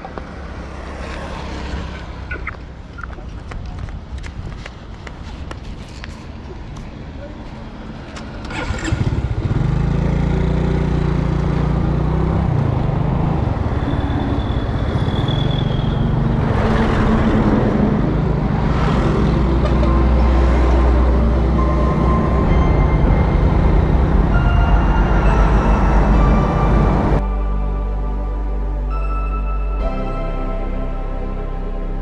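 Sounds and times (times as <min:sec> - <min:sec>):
trucks rumbling: 0:00.0 - 0:32.0
wind rush on microphone: 0:03.3 - 0:06.4
scooter engine running: 0:08.4 - 0:13.2.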